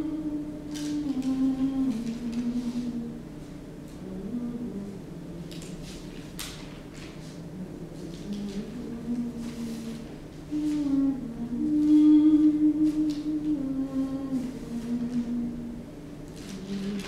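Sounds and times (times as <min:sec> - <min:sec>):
person humming a slow tune: 0:00.0 - 0:06.0, 0:07.2 - 0:17.0
faint rustles: 0:16.3 - 0:17.0.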